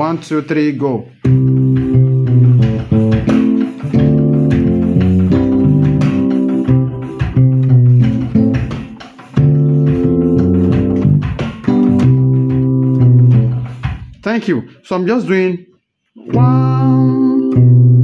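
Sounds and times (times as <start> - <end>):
digital piano highlife groove: 1.2 - 14.4.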